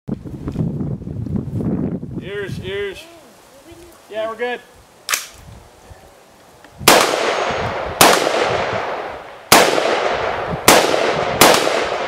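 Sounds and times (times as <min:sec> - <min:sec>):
rifle shots echoing: 0:06.8 - 0:12.0.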